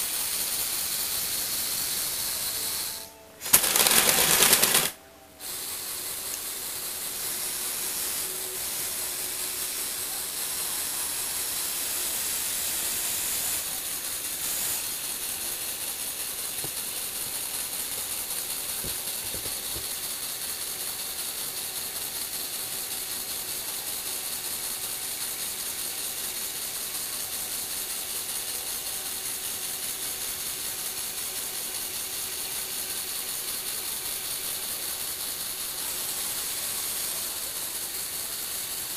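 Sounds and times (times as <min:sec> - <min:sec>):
electric motors driving plastic gears: 0:03.4 - 0:05.0.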